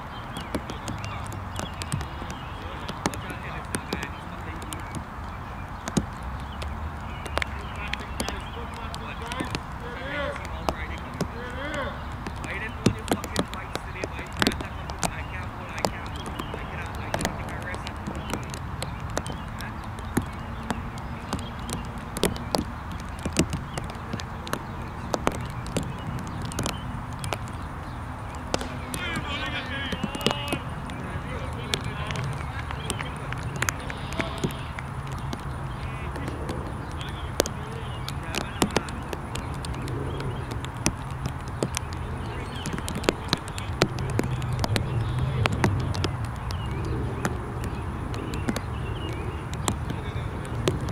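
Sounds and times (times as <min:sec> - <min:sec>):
distant voices talking: 0:00.0 - 0:50.9
sharp clicks and knocks: 0:00.3 - 0:09.8, 0:10.4 - 0:50.9
steady low rumble: 0:06.7 - 0:19.8.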